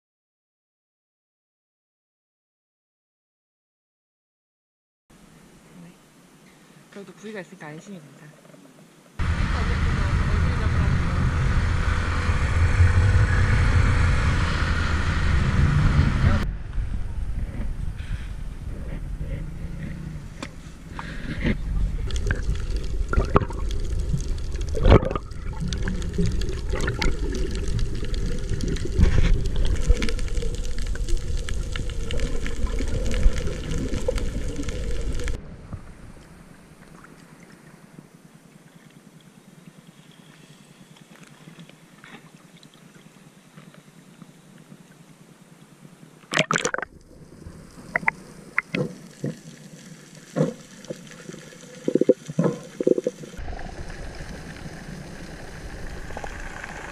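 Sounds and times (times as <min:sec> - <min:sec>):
faint hiss: 0:05.2 - 0:11.7
water rushing underwater: 0:09.2 - 0:37.7, 0:46.3 - 0:56.9
loud splash: 0:46.3 - 0:46.9.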